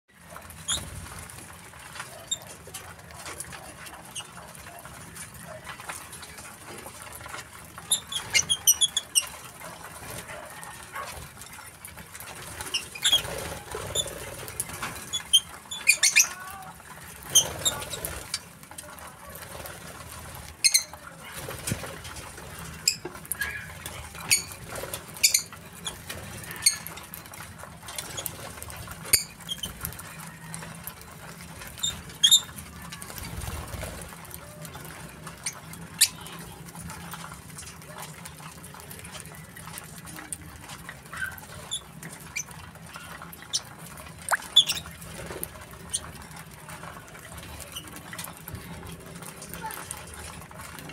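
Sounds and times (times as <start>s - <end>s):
wing flutters: 0.2s - 50.9s
lovebirds chirping: 44.3s - 45.0s.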